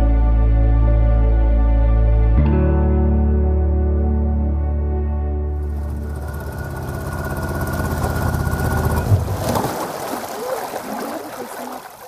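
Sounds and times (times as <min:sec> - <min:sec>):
boat motor running: 0:05.5 - 0:11.8
water against boat hull: 0:05.7 - 0:12.0.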